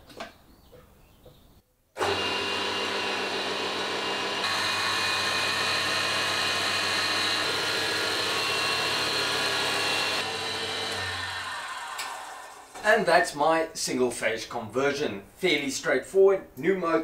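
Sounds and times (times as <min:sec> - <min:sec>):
table saw electric motor running: 0:02.0 - 0:12.8.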